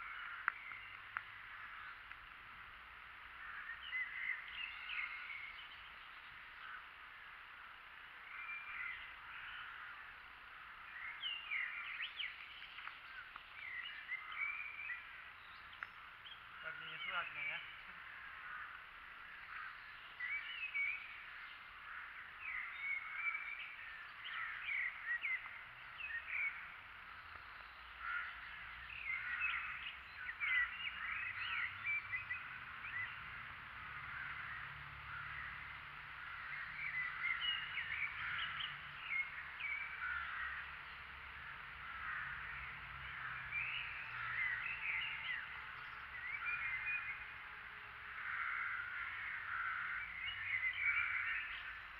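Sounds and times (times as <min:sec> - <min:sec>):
birds chirping: 0:00.0 - 0:51.9
crow-like caws: 0:03.3 - 0:04.5, 0:09.2 - 0:10.2, 0:17.9 - 0:19.9, 0:21.7 - 0:22.7, 0:28.0 - 0:29.9, 0:33.9 - 0:37.4, 0:39.6 - 0:40.8, 0:41.4 - 0:45.0, 0:48.0 - 0:51.7.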